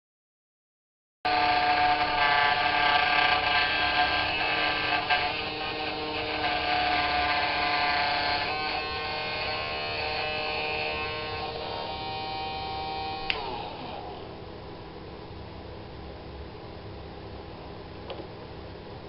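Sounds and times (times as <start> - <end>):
electric motor high whine: 1.3 - 14.5
switch click: 13.3 - 13.5.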